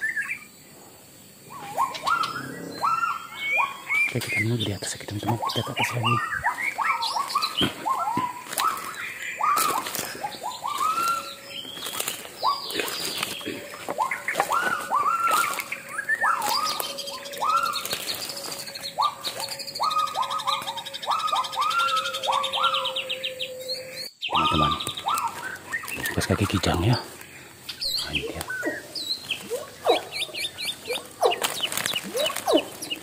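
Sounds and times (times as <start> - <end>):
rising whooping animal calls: 1.4 - 4.2, 5.4 - 27.1
footsteps on dry leaves: 5.9 - 21.2, 24.6 - 33.0.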